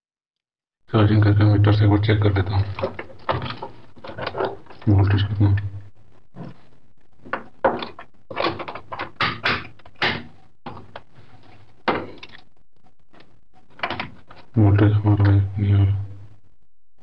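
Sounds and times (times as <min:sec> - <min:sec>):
tools knocking and clattering: 0:02.8 - 0:04.8, 0:07.2 - 0:11.1.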